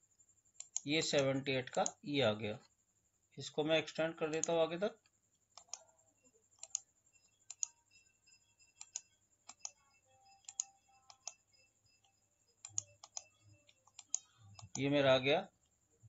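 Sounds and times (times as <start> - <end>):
mouse and keyboard clicks: 0.6 - 2.0, 5.5 - 5.8, 6.6 - 6.8, 7.5 - 7.8, 8.8 - 9.8, 10.4 - 11.4, 12.0 - 14.9.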